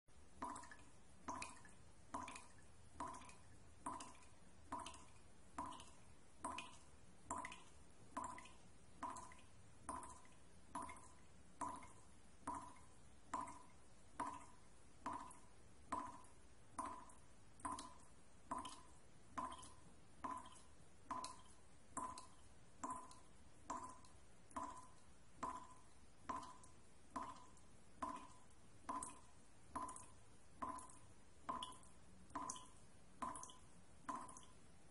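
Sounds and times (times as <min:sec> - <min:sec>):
drip-like pitched tones: 0:00.2 - 0:34.9.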